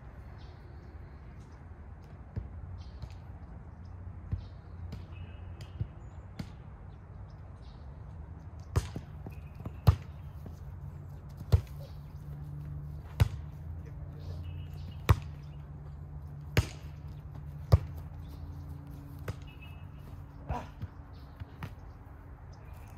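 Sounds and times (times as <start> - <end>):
volleyball slaps: 8.7 - 10.2, 16.5 - 17.0.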